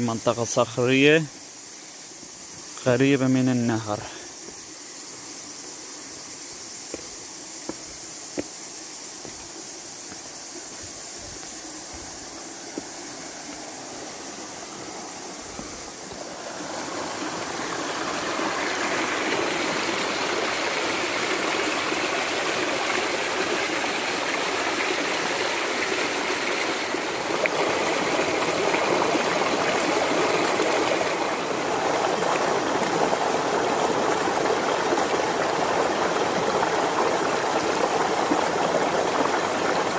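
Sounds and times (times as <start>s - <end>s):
stream splashing over stones: 9.2s - 39.9s.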